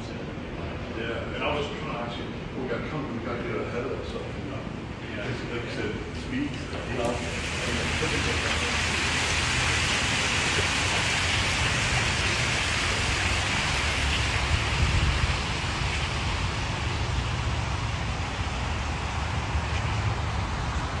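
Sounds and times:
water feature rushing and splashing: 5.0 - 21.0
wind rumbling on microphone: 11.6 - 21.0.

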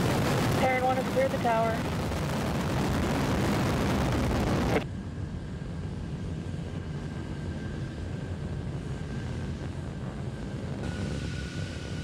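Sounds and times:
dull rumble: 0.0 - 5.1
rocket engines roaring: 0.0 - 12.0.

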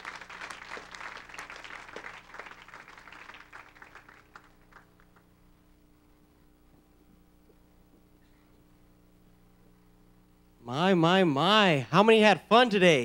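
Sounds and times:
congregation applauding: 0.0 - 5.4.

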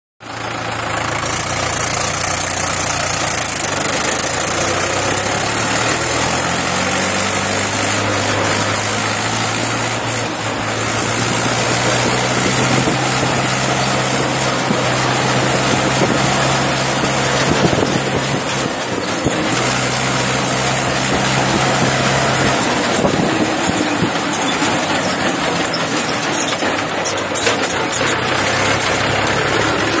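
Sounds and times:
tractor diesel engine running: 0.2 - 30.0
rattle noise: 1.2 - 30.0
wind rush: 20.9 - 24.3.

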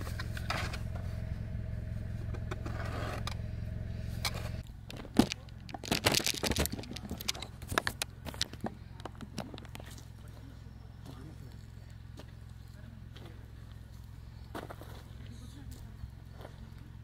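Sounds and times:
car engine humming: 0.0 - 17.0
clicks and rustles of handling: 4.9 - 10.1.

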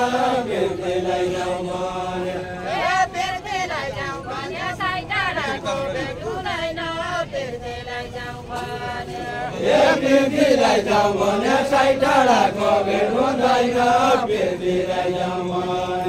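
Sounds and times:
group singing unaccompanied: 0.0 - 16.0.

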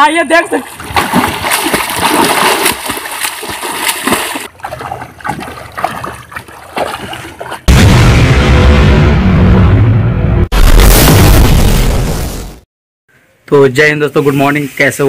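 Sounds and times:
swimmer splashing water: 0.5 - 7.7.

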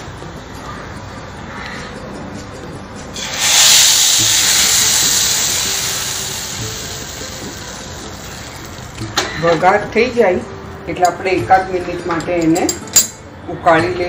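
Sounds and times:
hot oil sizzling: 3.2 - 9.6.

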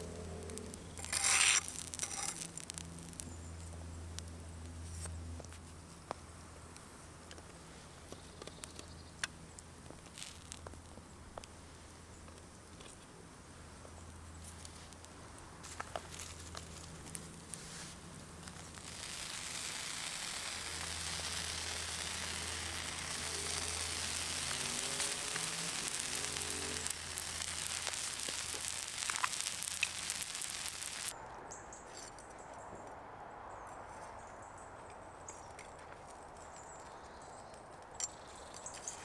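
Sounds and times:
food sizzling over fire: 0.0 - 12.8, 13.4 - 31.2
sharp pops: 14.4 - 31.1.

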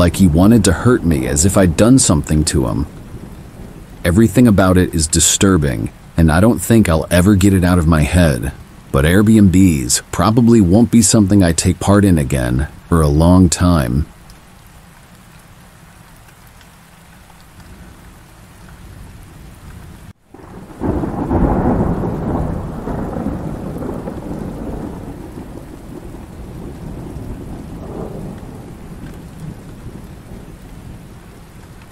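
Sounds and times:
steady rain: 0.0 - 31.9
thunder peal: 20.3 - 31.9.

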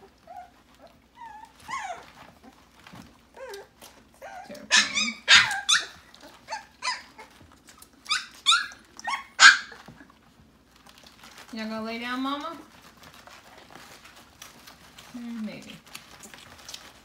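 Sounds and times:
puppies squealing and yelping: 0.0 - 10.3.

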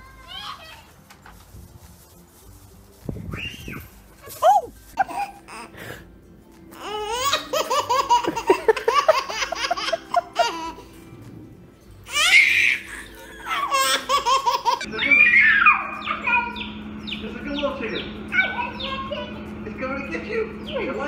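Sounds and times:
baby laughing: 4.4 - 6.0, 6.8 - 11.0, 12.1 - 16.6
baby squealing: 6.8 - 8.5, 12.1 - 16.7.

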